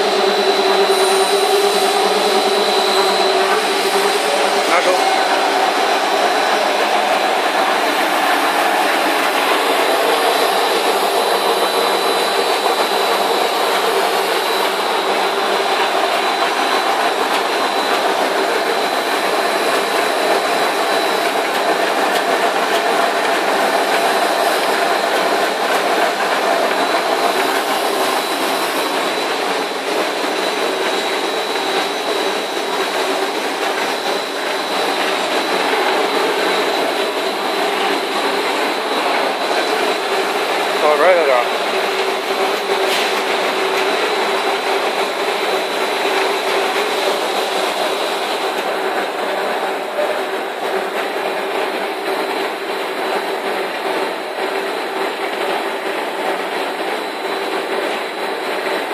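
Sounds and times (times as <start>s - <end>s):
thin high whine: 0.0s - 18.4s
steady machine din: 0.0s - 48.2s.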